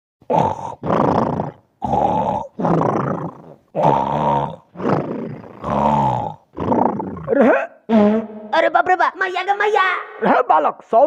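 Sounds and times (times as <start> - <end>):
rough growling grunts: 0.3 - 7.7.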